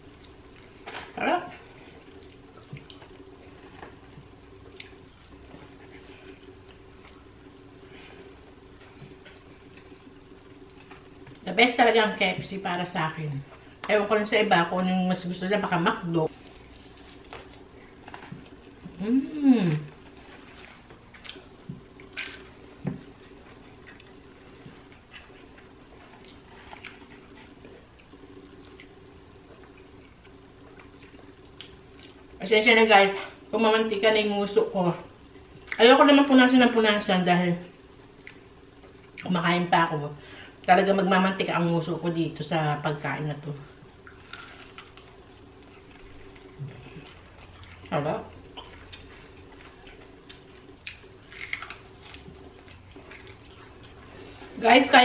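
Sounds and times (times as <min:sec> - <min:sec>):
faint steady hum: 0:00.0 - 0:55.0
person chewing wetly: 0:04.6 - 0:07.3, 0:19.9 - 0:32.2, 0:44.0 - 0:54.2.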